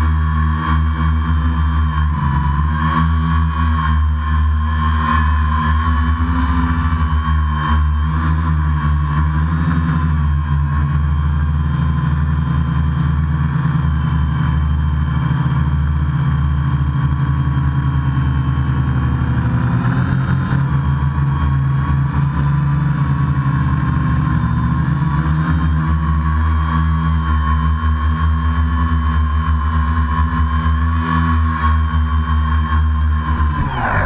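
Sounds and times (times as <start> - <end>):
drone propellers buzzing: 33.2 - 34.0.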